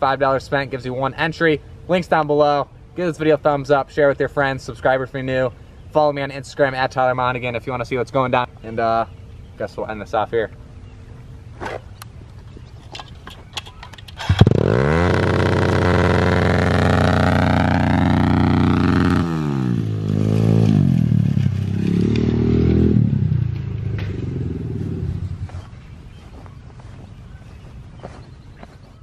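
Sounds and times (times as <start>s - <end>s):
motorbike engine revving: 14.1s - 25.7s.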